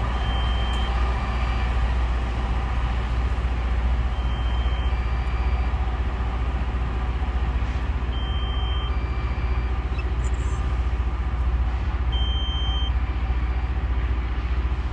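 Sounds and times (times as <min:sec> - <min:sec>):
rail grinder rumbling and grinding: 0:00.0 - 0:14.9
high two-tone electronic beep: 0:08.2 - 0:10.3, 0:12.2 - 0:13.6.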